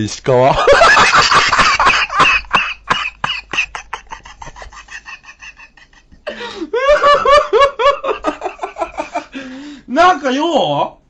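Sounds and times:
man coughing: 0:02.0 - 0:03.6.

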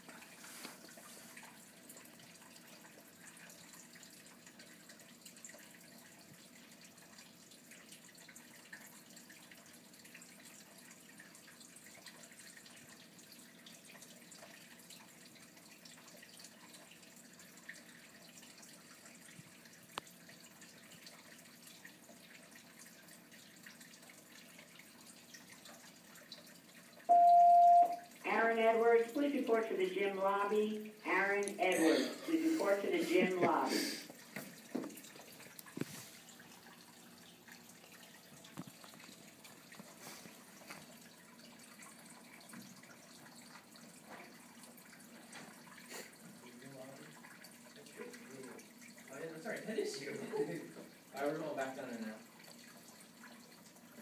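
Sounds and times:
room background noise: 0:00.0 - 0:53.8
faint constant tone: 0:00.0 - 0:54.0
loud electronic beep: 0:27.1 - 0:28.0.

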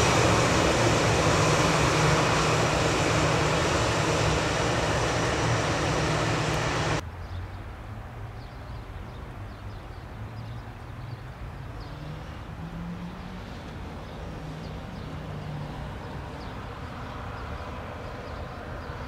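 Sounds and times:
airliner engine humming: 0:00.0 - 0:07.0
jet engines roaring: 0:00.0 - 0:07.0.

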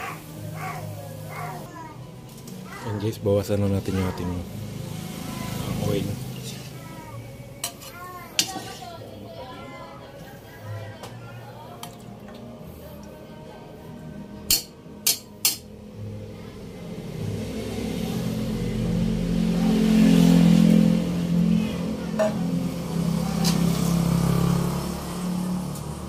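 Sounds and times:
vehicle engine passing by: 0:02.7 - 0:07.6, 0:15.9 - 0:26.0.

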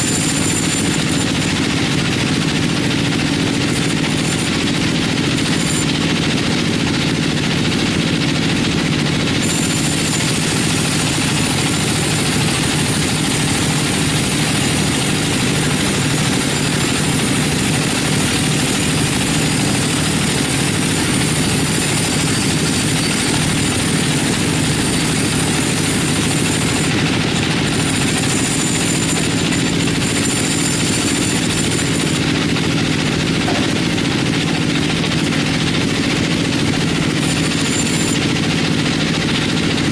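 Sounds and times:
band saw ripping a log: 0:00.0 - 0:08.1, 0:09.2 - 0:39.9
thin high whine: 0:36.8 - 0:38.2.

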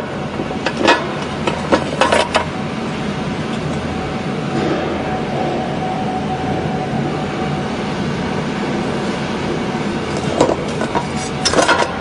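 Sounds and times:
faint machine whine: 0:00.0 - 0:12.0
machine humming: 0:00.0 - 0:12.0
clatter: 0:10.1 - 0:12.0.

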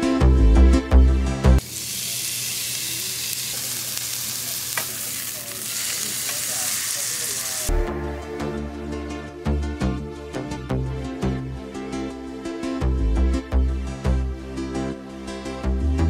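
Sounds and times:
meat patty sizzling on griddle: 0:01.6 - 0:07.7
electronic background music: 0:07.7 - 0:16.0.

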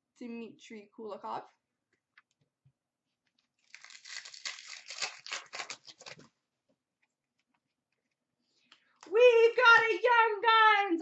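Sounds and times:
wrapper tearing and crinkling: 0:03.6 - 0:06.3.

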